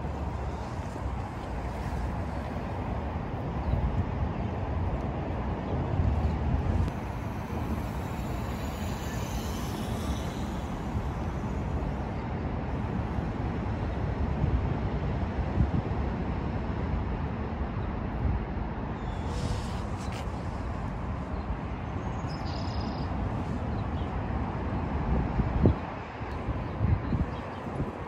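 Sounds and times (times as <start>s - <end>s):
distant road traffic rumble: 0.0s - 15.5s.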